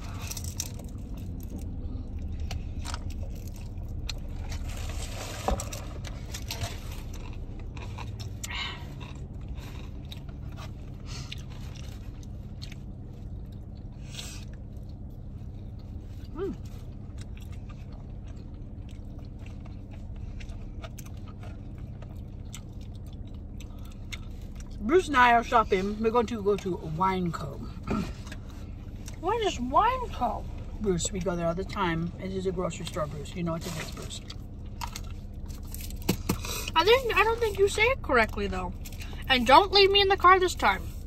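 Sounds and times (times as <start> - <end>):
person chewing and crunching: 0.0 - 25.1, 33.6 - 39.2
low hum: 0.0 - 41.0.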